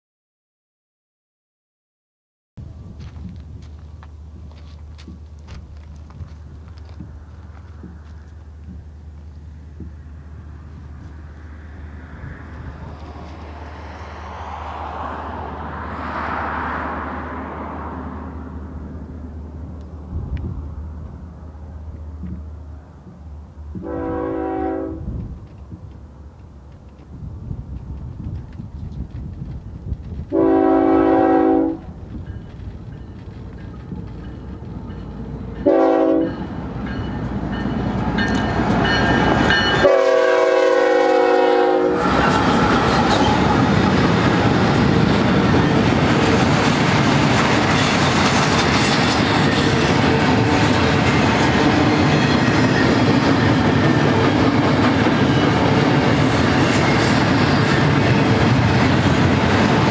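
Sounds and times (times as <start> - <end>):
train wheels rumbling on rails: 2.6 - 59.9
locomotive air horn blasts: 23.8 - 25.2, 30.3 - 31.9, 35.6 - 36.4, 39.6 - 42.7.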